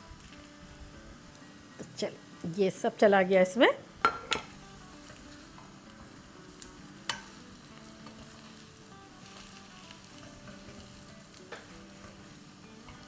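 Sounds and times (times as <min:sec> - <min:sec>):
food sizzling in oil: 0:00.0 - 0:13.0
spoon knocking against pan: 0:04.0 - 0:04.5.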